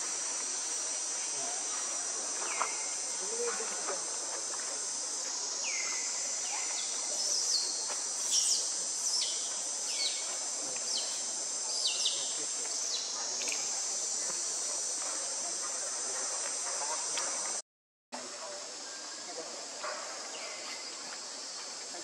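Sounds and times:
insects droning: 0.0 - 17.6, 18.2 - 22.0.

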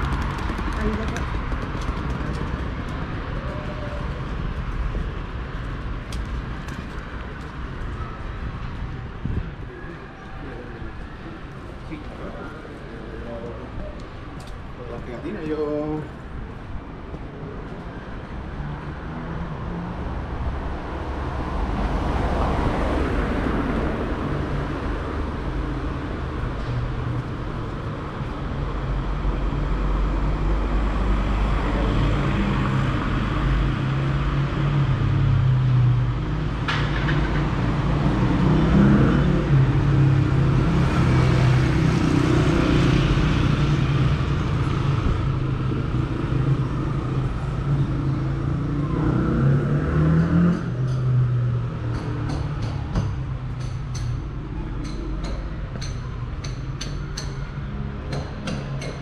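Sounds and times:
cars driving past: 14.6 - 59.0.

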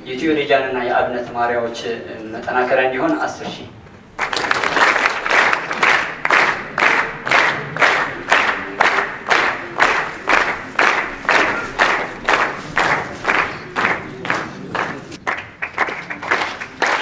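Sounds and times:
audience clapping in unison: 4.1 - 17.0.

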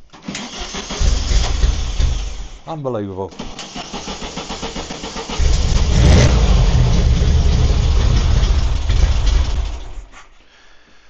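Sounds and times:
engine starter cranking: 0.0 - 2.6, 3.3 - 10.1
engine revving and running: 3.9 - 10.1.

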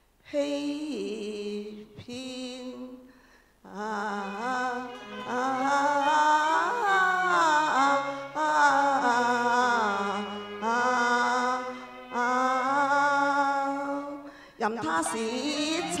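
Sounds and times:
person singing: 3.7 - 16.0
opera music with sliding melody: 3.8 - 16.0.

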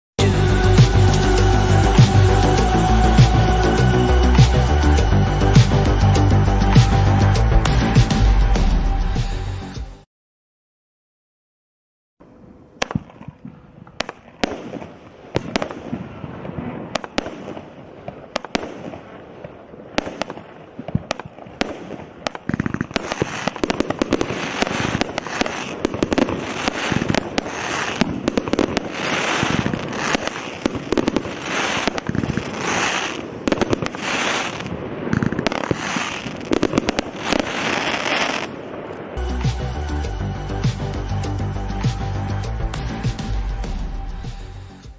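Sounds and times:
crackling firework bursts: 12.8 - 42.3
firework launch bangs: 20.0 - 39.6.

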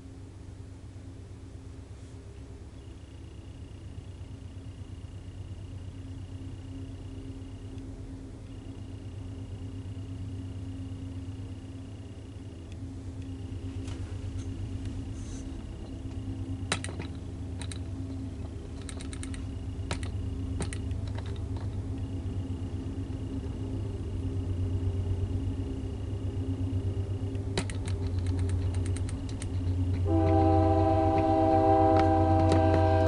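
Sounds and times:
diesel locomotives droning: 0.0 - 33.0
sharp clicks: 15.8 - 21.8, 27.3 - 30.0, 32.0 - 32.7
locomotive air horn: 30.0 - 33.0.

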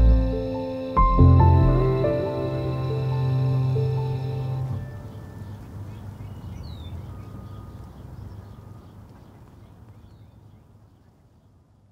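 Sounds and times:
steady low rumble: 0.0 - 6.0.

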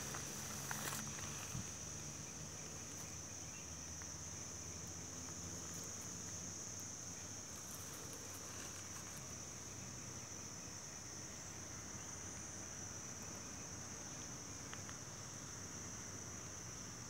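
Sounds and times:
insects calling: 0.0 - 17.0.

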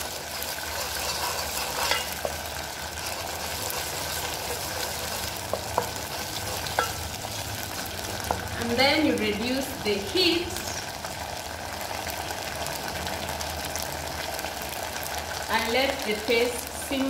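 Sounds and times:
sauce sizzling in a frying pan: 0.0 - 17.0
spoon clicking against pan: 6.7 - 7.0.

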